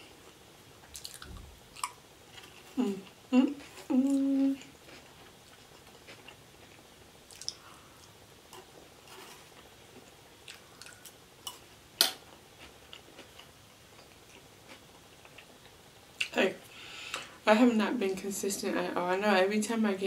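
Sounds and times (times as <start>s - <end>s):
quiet chewing: 0.2s - 11.7s, 12.3s - 16.3s
person humming: 2.7s - 4.7s.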